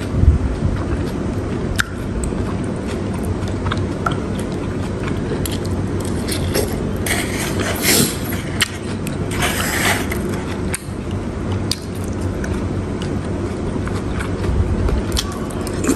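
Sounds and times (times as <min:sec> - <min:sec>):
low background hum: 0:00.0 - 0:15.9
metal spoon scraping a bowl: 0:06.3 - 0:08.6, 0:09.3 - 0:10.3.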